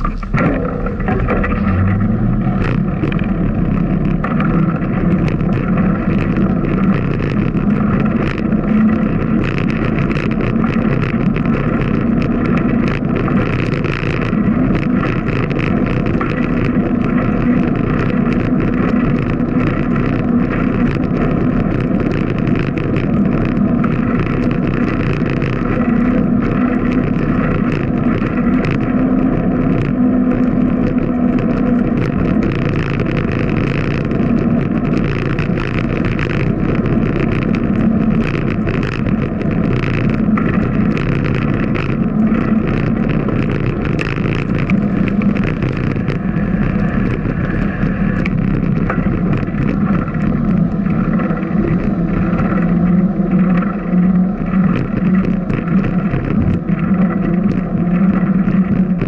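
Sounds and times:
bicycle rattling over bumps: 0.0s - 59.0s
bicycle tyres on concrete: 0.0s - 59.0s
wind buffeting microphone: 0.0s - 59.0s.

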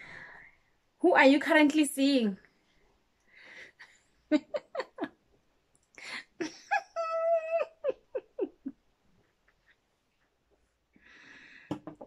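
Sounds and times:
woman breathing: 0.0s - 0.8s, 3.2s - 4.3s, 5.9s - 6.5s, 10.9s - 11.9s
woman chuckling: 4.3s - 5.2s, 6.3s - 8.9s.

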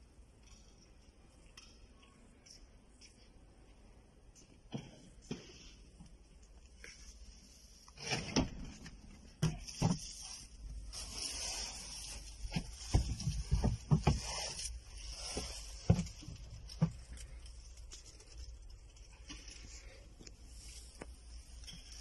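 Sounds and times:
handling thumps and rubbing: 11.7s - 17.4s.

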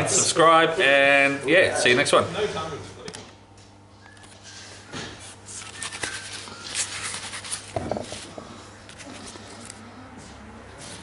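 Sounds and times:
crumpled cards crinkling: 5.5s - 9.8s.

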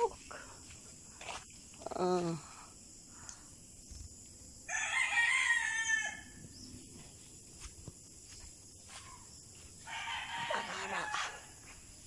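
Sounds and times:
rooster crowing: 4.7s - 6.4s, 9.8s - 11.6s.

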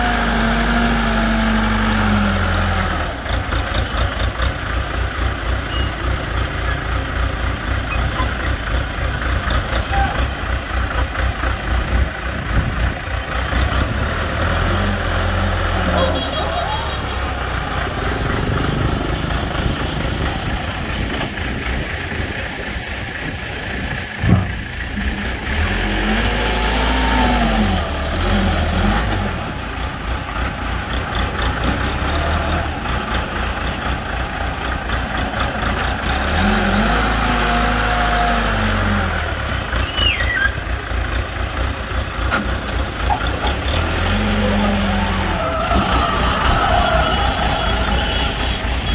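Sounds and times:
diesel engine revving: 0.0s - 48.9s.

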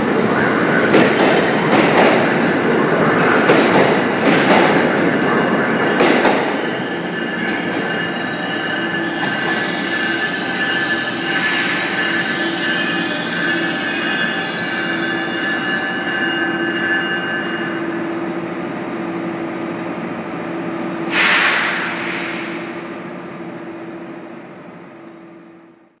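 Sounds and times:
train hum: 0.0s - 26.0s
train wheel squeal: 5.4s - 17.7s
short hisses: 21.1s - 22.5s.

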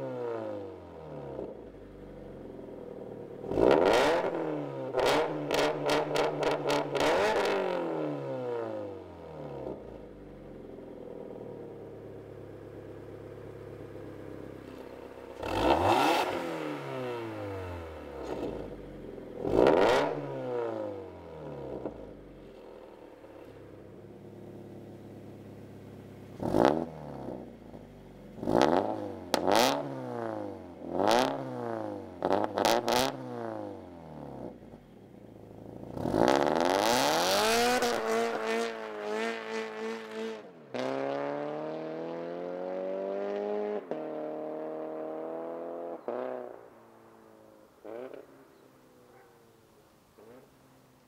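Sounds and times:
car engine revving: 3.0s - 9.8s, 12.7s - 22.6s, 23.2s - 33.7s, 35.5s - 46.6s
car accelerating through gears: 15.4s - 18.7s, 35.9s - 46.5s.

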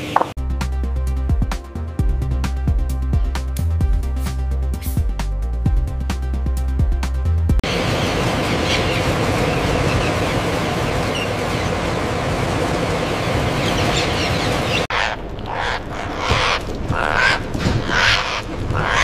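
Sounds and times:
harsh parrot squawks: 14.9s - 19.0s.

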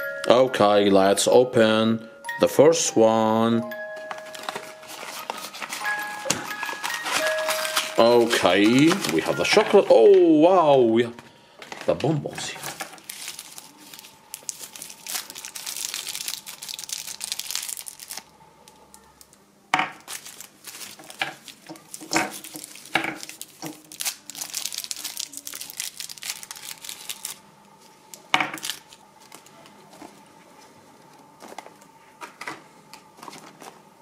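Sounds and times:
candy wrappers crinkling: 3.8s - 30.3s.

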